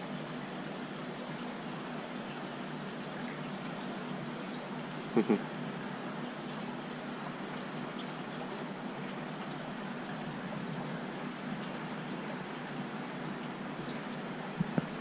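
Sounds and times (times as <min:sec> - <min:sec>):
bubbling aquarium water: 0:00.0 - 0:15.0.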